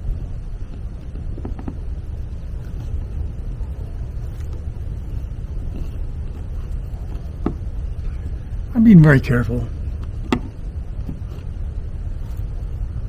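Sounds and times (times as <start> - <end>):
wind rumble on microphone: 9.7 - 13.0.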